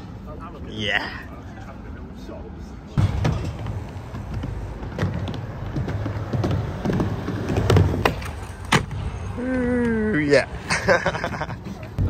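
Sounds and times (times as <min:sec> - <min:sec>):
skateboard wheels rolling: 0:03.0 - 0:12.0
skateboard clacks: 0:03.2 - 0:09.0.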